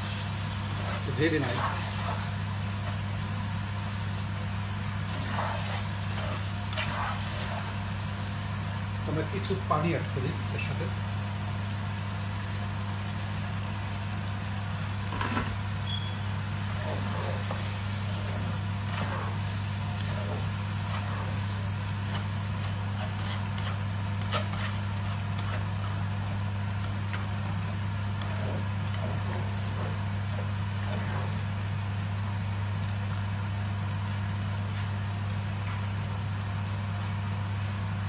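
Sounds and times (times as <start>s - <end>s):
spatula scraping frying pan: 0.0s - 3.0s, 5.0s - 7.8s, 16.5s - 31.4s
steady low hum: 16.0s - 32.1s.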